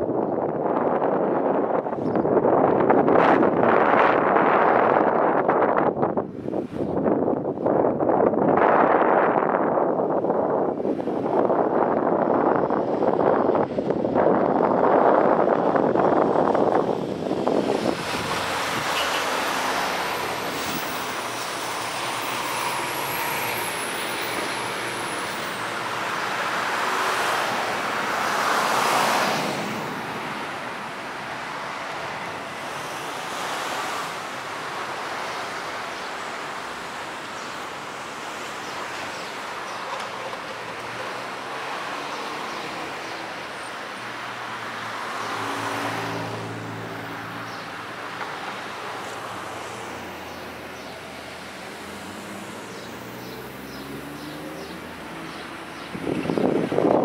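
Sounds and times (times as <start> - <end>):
hiss of cars and tyres: 17.1 - 39.9, 47.0 - 57.0
vehicle passing: 44.2 - 57.0.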